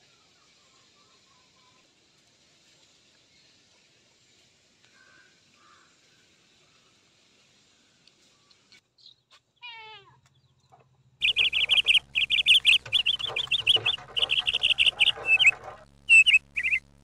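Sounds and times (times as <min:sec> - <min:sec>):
budgerigars chattering: 0:11.2 - 0:16.8.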